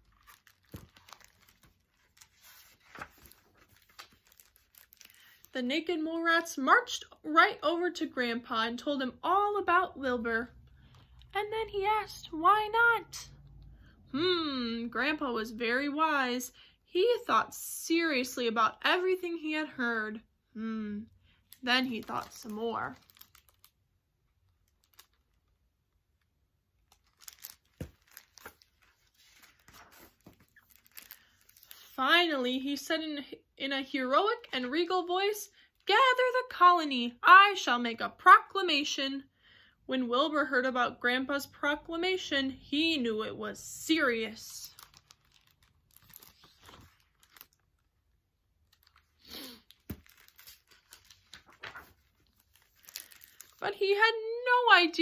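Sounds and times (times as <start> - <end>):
book being handled: 0.0 - 5.1, 26.9 - 31.8, 44.7 - 47.6, 48.7 - 53.6.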